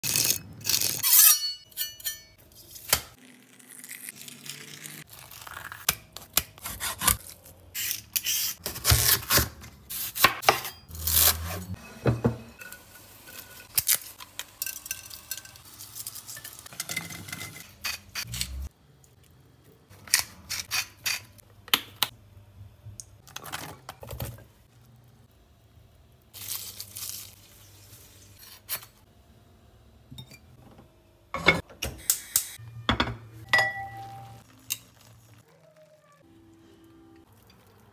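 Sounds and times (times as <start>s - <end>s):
plastic bag rustling: 26.4s - 28.0s.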